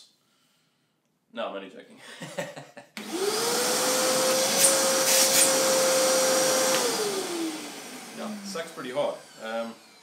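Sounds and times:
vacuum cleaner motor running: 3.0 - 10.0.

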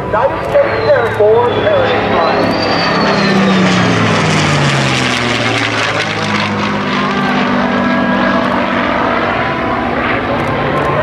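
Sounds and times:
jet engine rush: 0.0 - 11.0
piston engine plane droning: 0.0 - 11.0.

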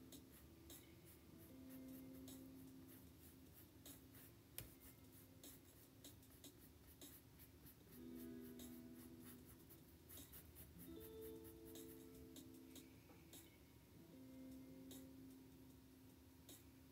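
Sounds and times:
paintbrush scratching on canvas: 0.1 - 12.0
faint low tones: 7.9 - 16.9.

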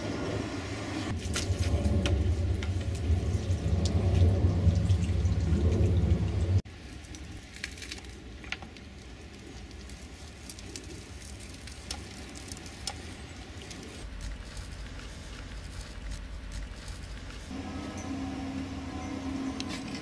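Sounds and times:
steam engine low rumble: 0.0 - 7.1, 17.5 - 20.0.

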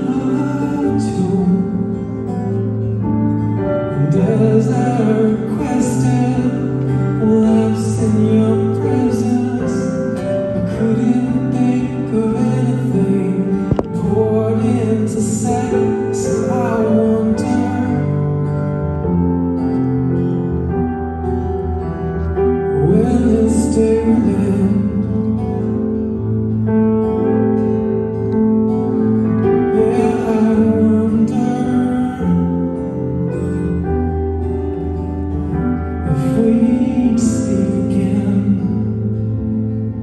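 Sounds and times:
man singing: 0.0 - 2.7, 3.8 - 18.7, 22.6 - 25.8, 29.4 - 33.4, 36.0 - 40.0
acoustic guitar: 0.0 - 40.0
keyboard playing: 0.0 - 40.0.

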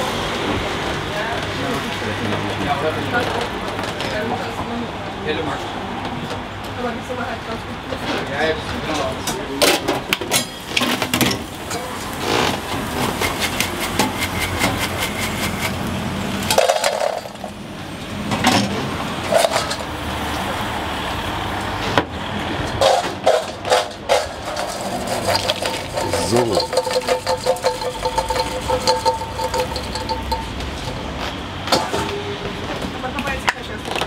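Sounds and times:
traffic: 0.0 - 34.0
utensils and containers clattering: 9.0 - 17.6, 18.3 - 19.9, 22.6 - 32.2
equipment noise: 10.4 - 17.7, 22.6 - 32.9.

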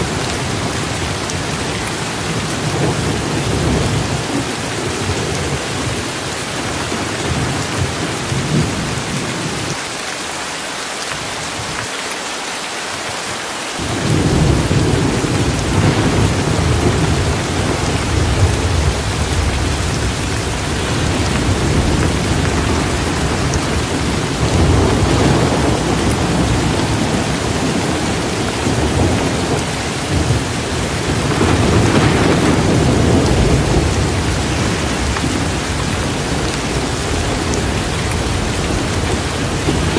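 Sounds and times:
steady rain: 0.0 - 39.9
low rolling thunder: 13.8 - 39.9.

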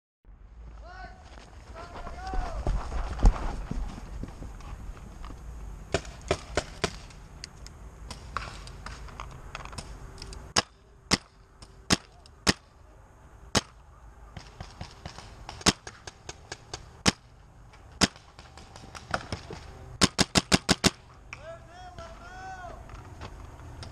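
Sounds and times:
faint distant paintball shots: 5.9 - 7.2, 13.5 - 23.9
loud paintball shots nearby: 5.9 - 7.2, 10.5 - 12.7, 13.5 - 21.1.

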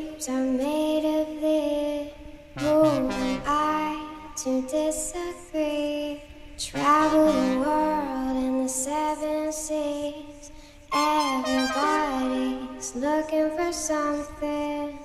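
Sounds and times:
music with sung melody: 2.6 - 4.0, 6.7 - 8.4, 10.9 - 15.0.

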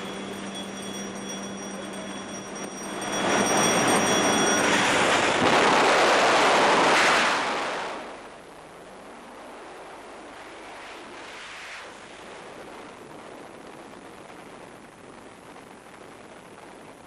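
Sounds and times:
plane engine drone: 0.0 - 6.8
freefall wind rushing: 0.0 - 17.0.

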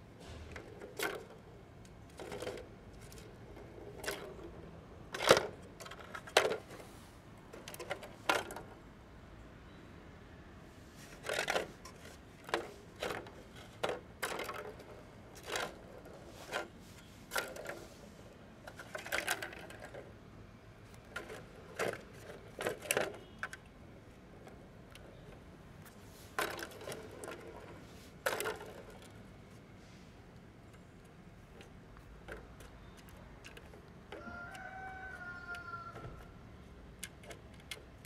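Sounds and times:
rattling plastic balls in toy: 0.5 - 8.8, 11.0 - 20.2, 20.8 - 29.4, 30.8 - 38.0.

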